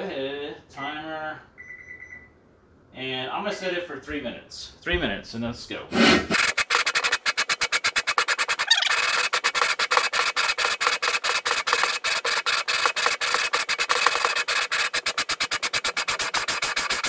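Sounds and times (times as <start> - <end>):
grinding compound rasping: 6.0 - 17.0.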